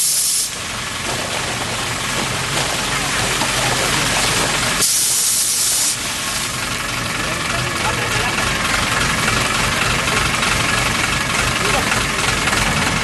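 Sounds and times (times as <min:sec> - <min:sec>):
sharp high hiss: 0:00.0 - 0:00.6, 0:04.8 - 0:06.5
truck engine running: 0:00.0 - 0:13.0
liquid gushing onto concrete: 0:00.5 - 0:06.6.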